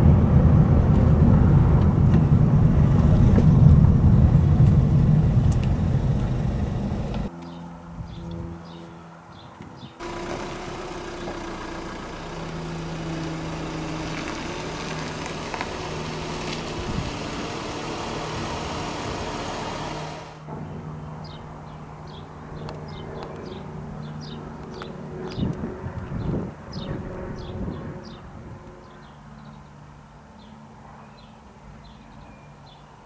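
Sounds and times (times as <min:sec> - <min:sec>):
vehicle engine idling: 0:00.0 - 0:07.6, 0:10.0 - 0:25.5
birds chirping: 0:04.7 - 0:29.7
loud rushing noise: 0:13.1 - 0:20.5.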